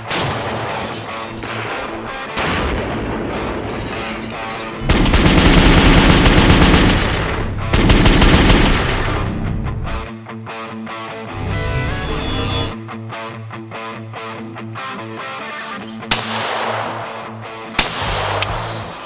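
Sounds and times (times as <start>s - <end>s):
gunfire: 16.1s - 18.4s.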